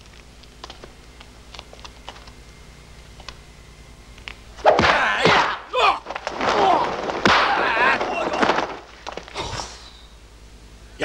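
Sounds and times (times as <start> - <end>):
faint clicks: 0.0 - 3.4
men yelling while fighting: 4.8 - 8.6.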